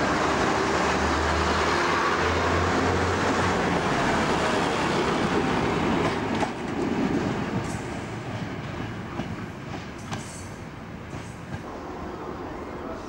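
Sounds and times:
train wheels rumbling on rails: 0.0 - 13.0
rail clicks: 3.0 - 11.8.

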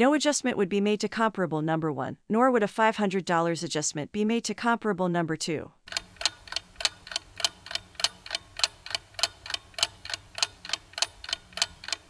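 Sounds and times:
clock ticking: 5.9 - 12.0.

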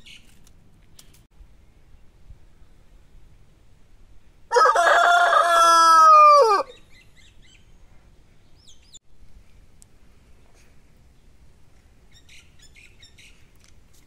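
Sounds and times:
rooster crowing: 4.5 - 6.7.

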